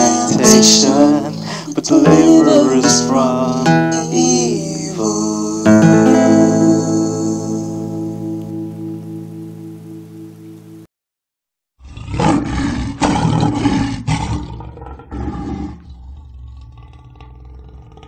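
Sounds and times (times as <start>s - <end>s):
held music note: 0.0s - 10.8s
rough animal-like roar: 11.8s - 18.0s.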